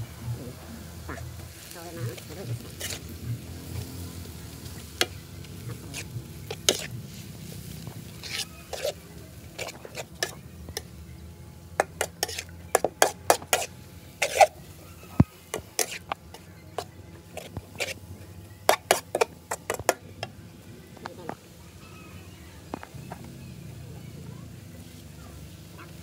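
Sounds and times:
metal spatula scraping a wok: 1.0s - 10.9s, 11.8s - 14.8s, 15.4s - 18.0s, 18.6s - 20.0s.

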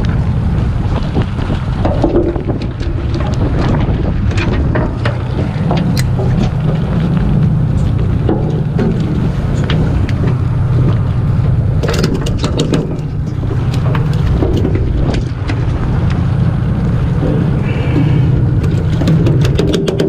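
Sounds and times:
boat engine droning: 0.0s - 20.0s
wind on microphone: 0.0s - 20.0s
sharp knocks: 17.2s - 20.0s.

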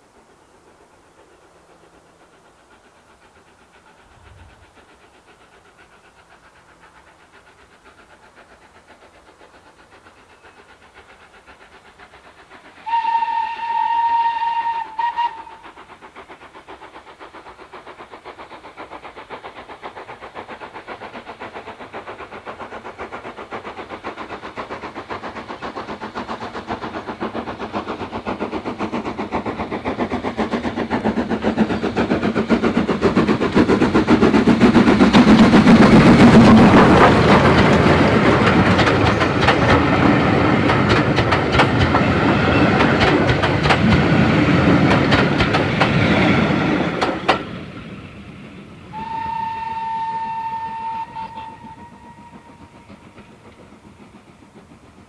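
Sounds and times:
steam locomotive exhaust beat: 0.0s - 55.0s
steam locomotive whistle: 12.8s - 15.8s, 48.9s - 53.1s.

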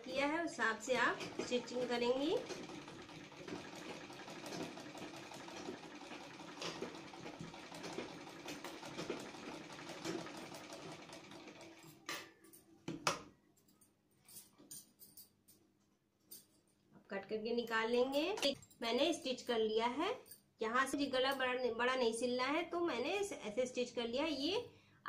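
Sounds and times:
sewing machine running: 0.0s - 12.1s.

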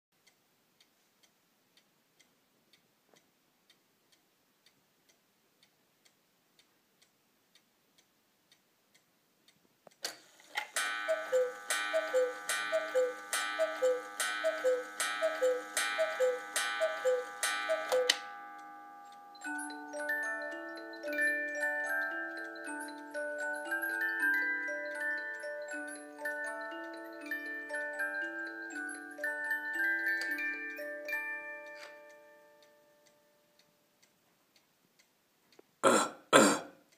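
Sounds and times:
clock ticking faintly: 0.2s - 35.8s
clock mechanism click: 9.9s - 19.8s
music box tinkling tune: 10.8s - 33.8s
two-note cuckoo calls: 11.0s - 18.2s.

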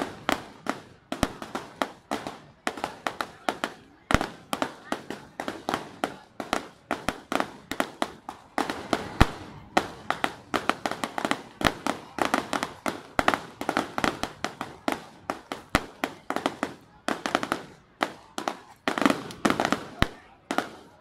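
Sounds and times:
fireworks bursting: 0.0s - 21.0s.

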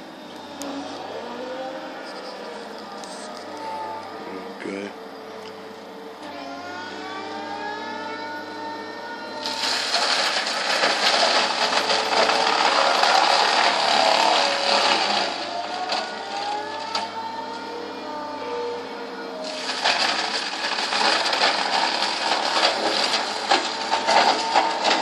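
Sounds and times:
machine engine and hydraulics whining: 0.0s - 25.0s
mulcher shredding shrub: 9.3s - 18.5s, 19.4s - 25.0s.

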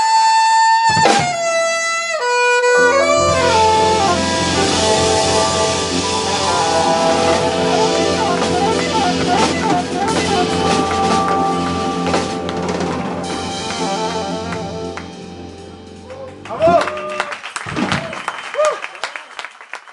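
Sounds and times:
saxophone: 0.0s - 16.7s
electric bass: 2.7s - 16.8s
drum kit: 2.7s - 17.0s.

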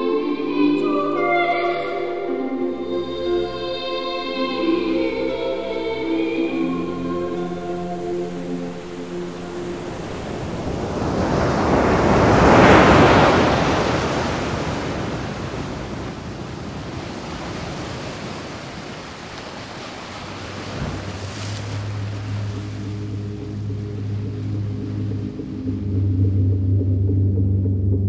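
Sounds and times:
music drone: 0.0s - 10.9s, 21.6s - 28.0s
rushing whoosh of noise: 8.8s - 17.9s.

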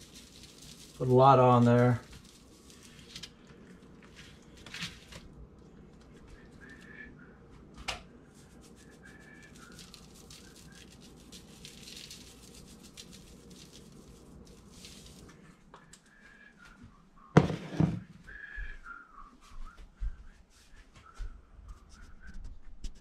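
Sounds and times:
plastic shaker shaking: 0.0s - 3.2s, 8.4s - 15.3s
seasoning pattering onto meat: 0.0s - 5.2s, 8.3s - 15.4s.

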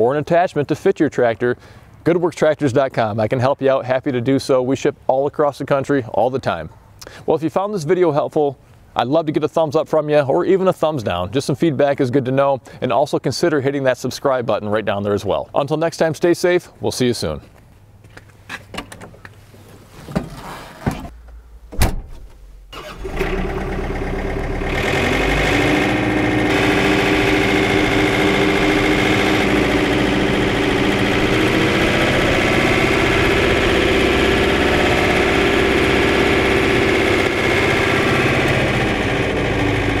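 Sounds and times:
cab door clicking shut: 21.7s - 22.4s
tractor diesel engine: 22.8s - 40.0s.

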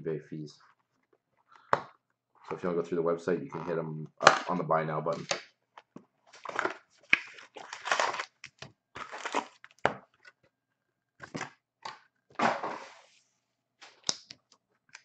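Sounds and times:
foil packs crinkling: 6.4s - 9.8s.

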